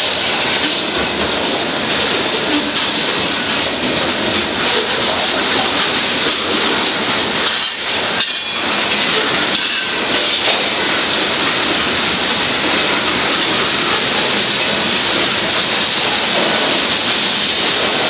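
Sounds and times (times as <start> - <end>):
freight train wheels on rails: 0.0 - 18.0
metallic clanks: 7.4 - 8.8, 9.5 - 10.6.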